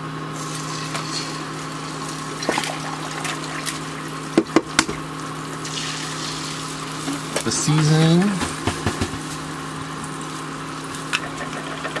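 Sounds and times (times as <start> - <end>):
butter sizzling in a frying pan: 0.4 - 4.4, 5.1 - 12.0
sharp knocks: 8.4 - 9.4.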